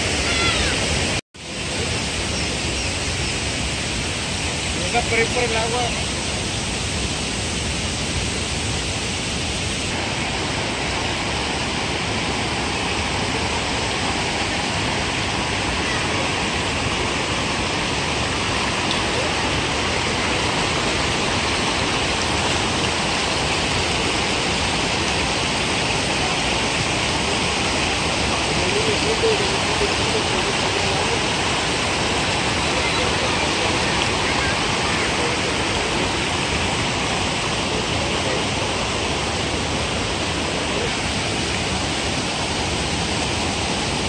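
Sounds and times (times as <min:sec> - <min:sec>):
waterfall roaring: 0:00.0 - 0:44.0.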